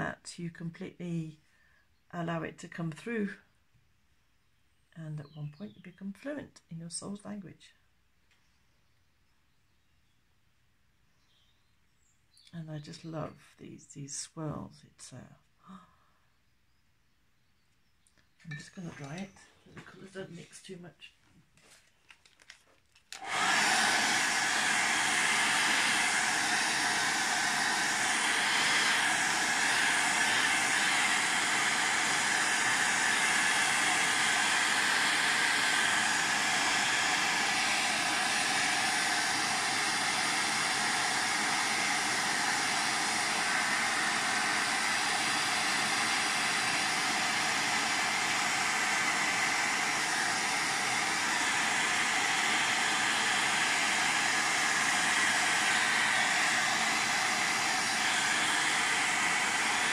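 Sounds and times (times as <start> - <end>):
hair dryer blowing: 18.5 - 20.8, 21.6 - 59.9.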